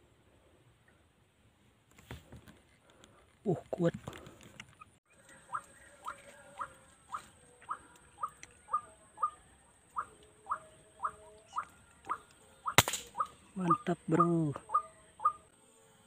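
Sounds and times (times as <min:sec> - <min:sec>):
waterhen calling: 0:05.1 - 0:15.5
single sharp shot: 0:12.8 - 0:13.2.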